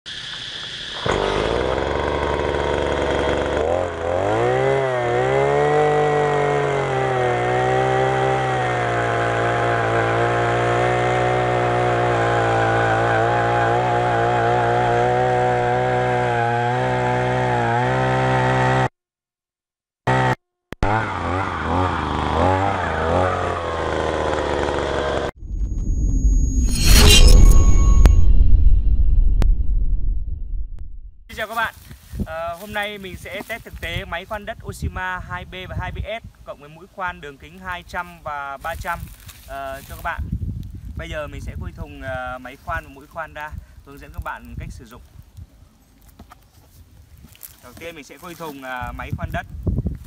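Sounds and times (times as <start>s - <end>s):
earth auger engine revving: 0.1s - 18.9s, 20.1s - 26.5s.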